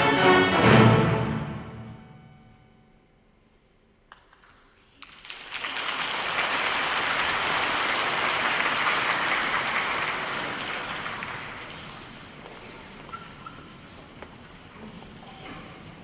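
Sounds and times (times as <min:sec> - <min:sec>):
audience applause: 0:04.9 - 0:12.4.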